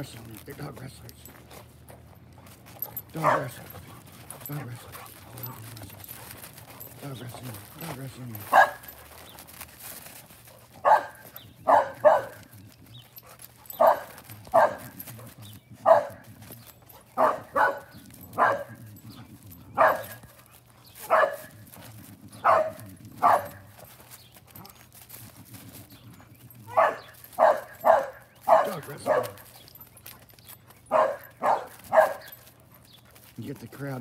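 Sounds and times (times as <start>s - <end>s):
dog barking: 3.1s - 3.6s, 8.5s - 8.9s, 10.8s - 12.5s, 13.8s - 15.0s, 15.8s - 16.2s, 17.2s - 18.9s, 19.7s - 20.2s, 21.0s - 21.6s, 22.4s - 23.7s, 26.7s - 29.4s, 30.9s - 32.4s.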